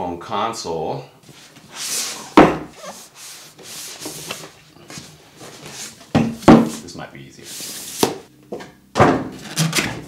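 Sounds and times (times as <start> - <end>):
cardboard rubbing and sliding: 1.3 - 6.1.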